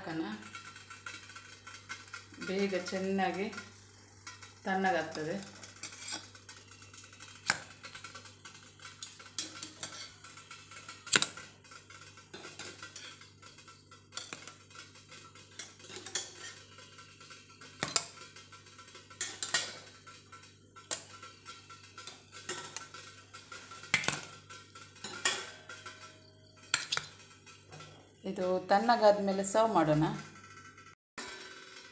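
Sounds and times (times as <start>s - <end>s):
metal cups clinking on plate: 4.3s - 28.2s.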